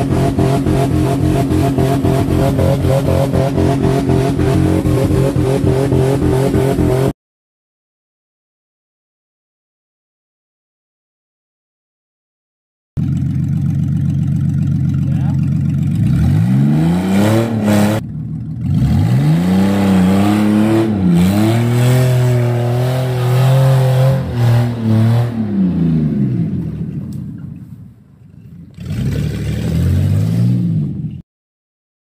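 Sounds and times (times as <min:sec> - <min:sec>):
engine revving hard: 0:00.0 - 0:07.2, 0:16.0 - 0:18.0, 0:18.6 - 0:26.5, 0:28.8 - 0:31.0.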